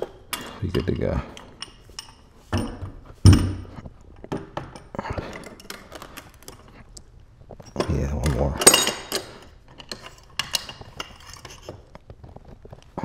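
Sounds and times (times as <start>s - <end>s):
wrenches clinking on metal pipe: 0.0s - 3.7s, 7.6s - 11.7s.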